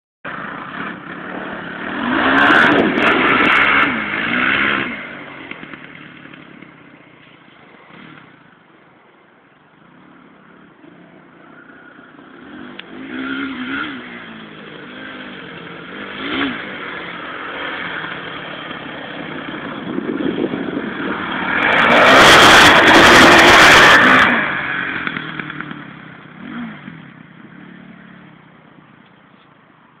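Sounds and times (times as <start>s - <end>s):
atv engine revving: 0.3s - 9.0s, 9.7s - 29.0s
loud rushing noise: 11.8s - 26.9s.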